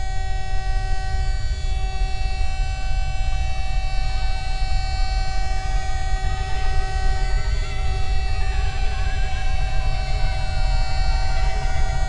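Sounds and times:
alarm siren tone: 0:00.0 - 0:12.0
faint wavering tones: 0:00.0 - 0:12.0
heavy low rumble: 0:05.3 - 0:12.0.

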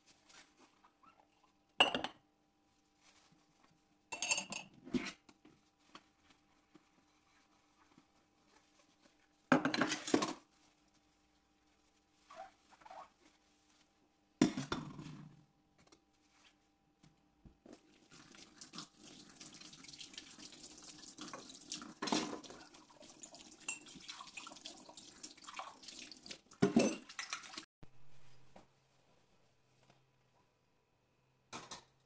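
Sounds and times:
tap water running into sink: 0:18.0 - 0:27.6.

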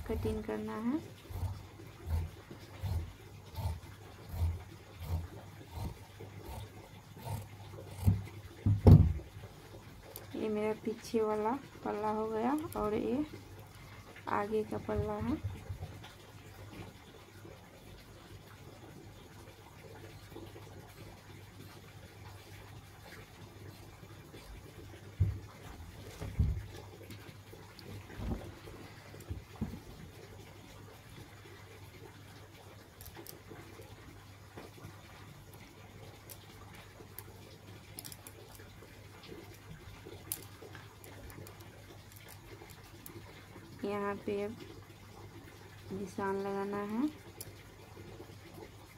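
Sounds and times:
low steady hum: 0:00.0 - 0:48.9.

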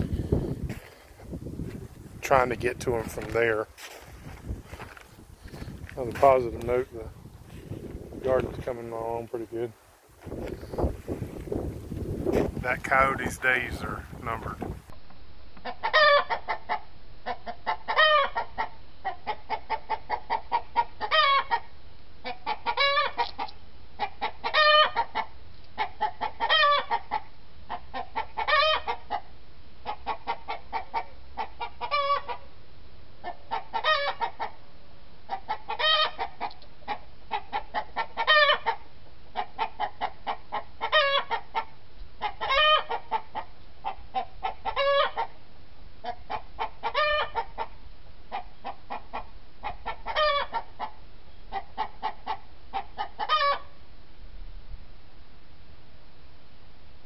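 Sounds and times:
chicken squawking: 0:15.6 - 0:23.3, 0:24.0 - 0:27.3, 0:27.9 - 0:29.2, 0:29.8 - 0:32.4, 0:33.2 - 0:34.6, 0:35.3 - 0:38.8, 0:39.4 - 0:45.4, 0:46.0 - 0:53.7
chickens clucking: 0:15.6 - 0:32.5, 0:33.2 - 0:34.6, 0:35.3 - 0:45.4, 0:46.0 - 0:53.7.

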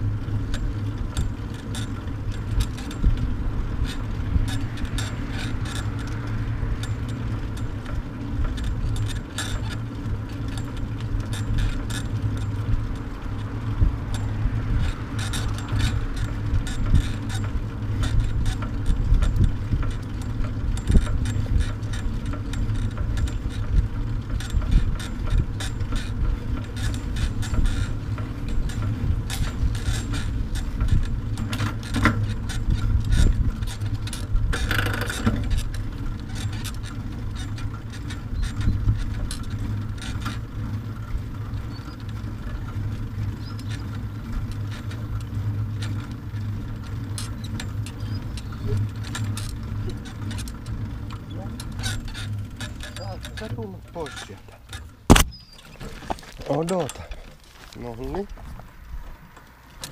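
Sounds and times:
trailer rattles and clicks: 0:00.0 - 0:59.9
trailer rolling on asphalt: 0:00.0 - 0:59.9
wind buffeting microphone: 0:00.1 - 0:45.8.

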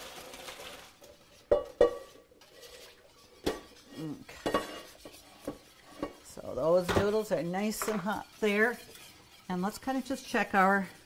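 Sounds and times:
metal pots clanking: 0:01.1 - 0:09.9.

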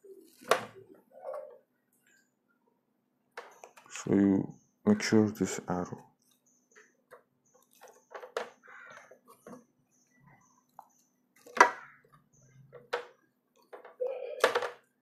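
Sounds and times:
plastic tubing clicks and knocks: 0:06.8 - 0:09.7, 0:10.7 - 0:14.9.

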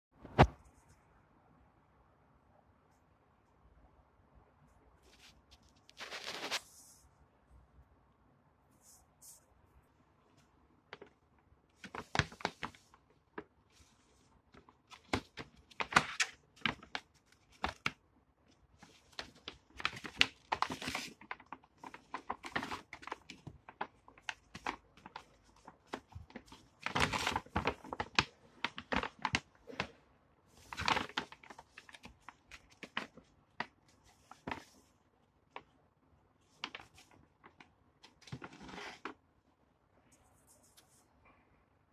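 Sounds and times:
plastic pouches crinkling: 0:18.8 - 0:34.8.

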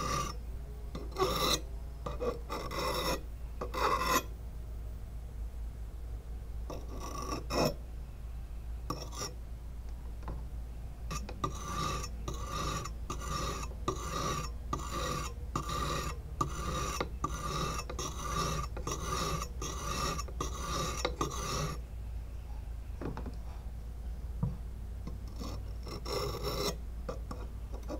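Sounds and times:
sharpening stone scraping blade: 0:00.0 - 0:00.4, 0:01.0 - 0:04.3, 0:06.7 - 0:07.8, 0:08.9 - 0:09.4, 0:11.1 - 0:21.8, 0:25.3 - 0:27.9.

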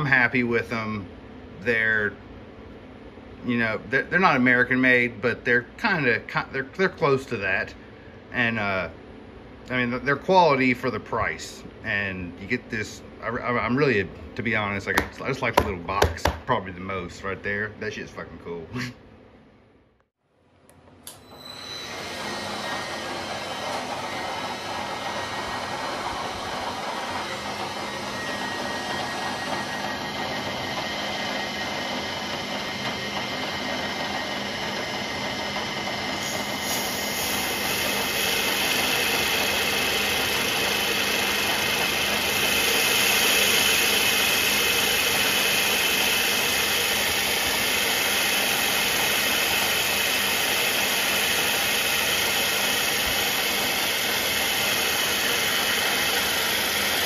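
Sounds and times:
milling machine spindle cutting metal: 0:21.1 - 0:57.0.

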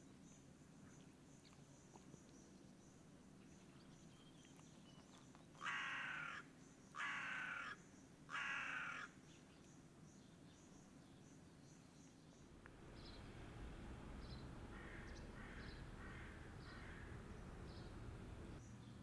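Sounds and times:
bird calling: 0:14.1 - 0:18.6.

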